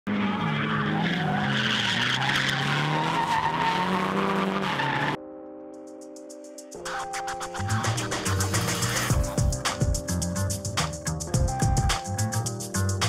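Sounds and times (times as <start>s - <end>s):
car engine revving: 0.1s - 5.2s
tires squealing: 0.1s - 5.2s.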